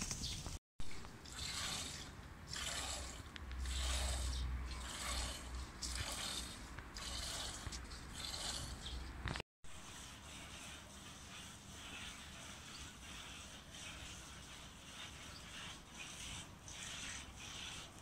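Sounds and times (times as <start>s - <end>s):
milk squirting into plastic bucket: 1.0s - 8.8s.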